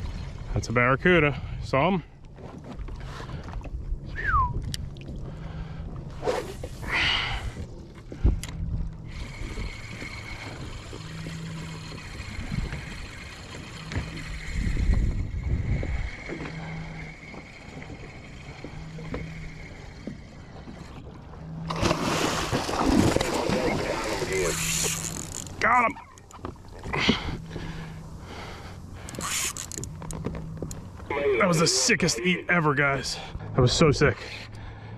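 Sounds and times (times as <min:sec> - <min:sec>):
water moving around kayak: 0:00.0 - 0:34.9
wind on microphone: 0:03.9 - 0:05.4, 0:11.9 - 0:17.0.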